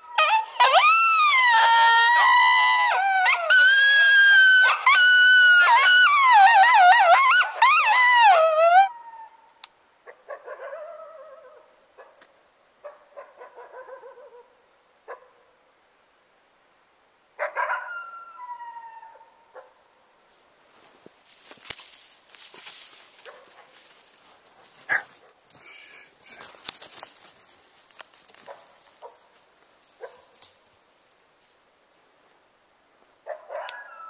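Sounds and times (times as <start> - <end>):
coyotes howling and yipping: 0.0 - 11.8, 13.1 - 15.3, 17.4 - 19.7, 33.3 - 34.0
rustling hiss: 19.4 - 33.3.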